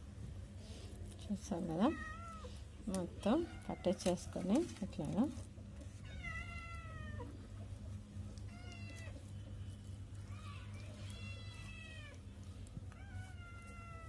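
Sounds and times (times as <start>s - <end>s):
steady low hum: 0.0s - 14.0s
cat meowing: 6.0s - 7.3s, 10.4s - 12.2s, 12.9s - 14.0s.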